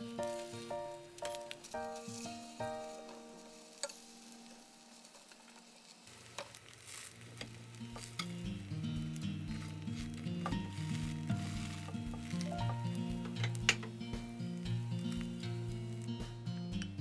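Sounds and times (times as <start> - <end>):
gentle background music: 0.0 - 5.7, 7.4 - 17.0
utensil stirring food in bowl: 9.5 - 12.5.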